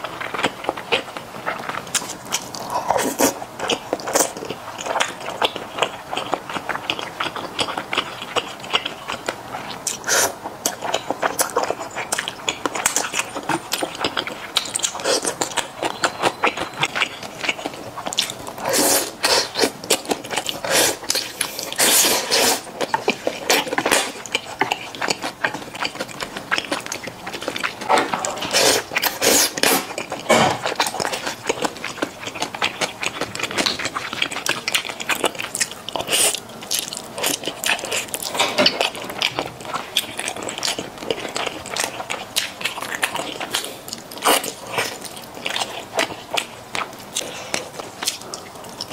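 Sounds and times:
person chewing: 0.0s - 48.9s
noodle slurping: 13.5s - 26.0s, 28.4s - 30.0s.

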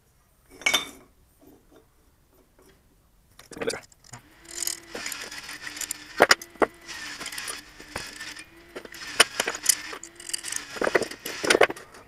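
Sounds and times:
steel parts clinking: 3.8s - 12.0s.

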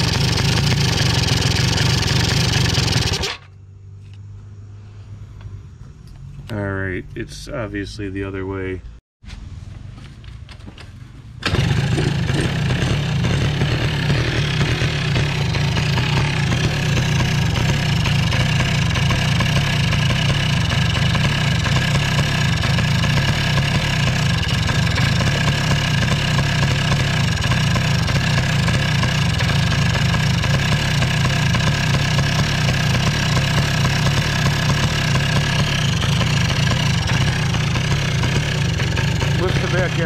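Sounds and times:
two-stroke engine idling: 0.0s - 3.5s, 11.4s - 40.0s.

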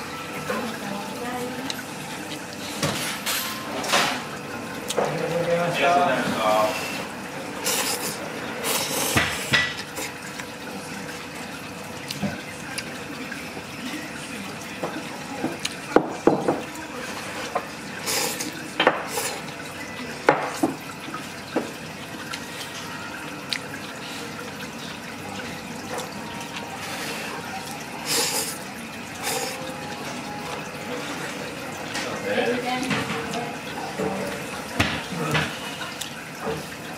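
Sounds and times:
running water: 0.0s - 36.9s
dishes and utensils clinking: 1.7s - 5.3s, 14.8s - 23.1s, 29.2s - 36.8s.

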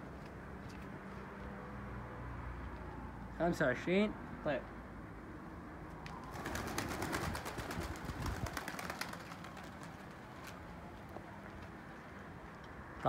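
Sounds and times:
pigeon wingbeats and wing claps: 6.0s - 10.6s.

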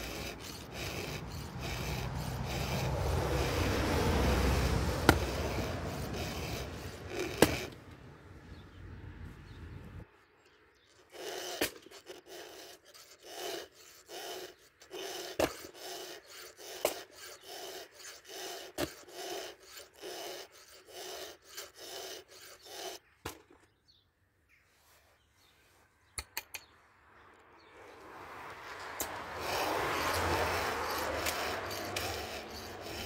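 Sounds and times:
file rasping on chain teeth: 0.0s - 7.8s, 10.9s - 23.2s, 28.8s - 33.0s
sharp clicks: 26.2s - 26.8s.

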